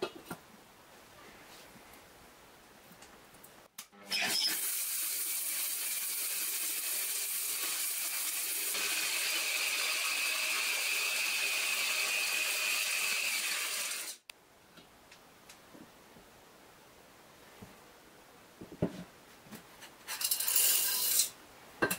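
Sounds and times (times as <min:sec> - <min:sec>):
corn kernels rattling in a pot: 0:20.1 - 0:21.3.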